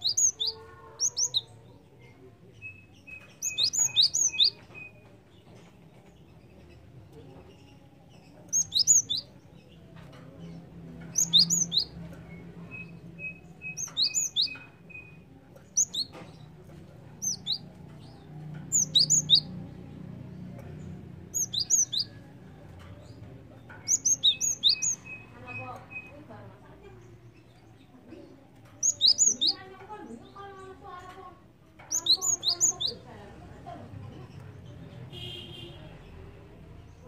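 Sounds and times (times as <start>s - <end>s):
bird singing whistled notes: 2.6s - 5.0s, 8.5s - 9.3s, 11.1s - 15.2s, 17.2s - 17.6s, 18.7s - 19.5s, 21.3s - 22.1s, 23.8s - 26.2s, 28.8s - 29.6s, 31.9s - 33.0s.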